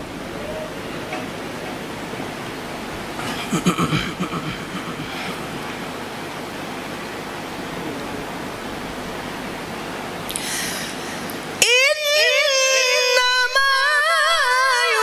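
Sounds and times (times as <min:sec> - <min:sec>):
microphone hiss: 0:00.0 - 0:15.0
hall ambience: 0:03.0 - 0:07.0
brief vocal sound: 0:03.2 - 0:06.0.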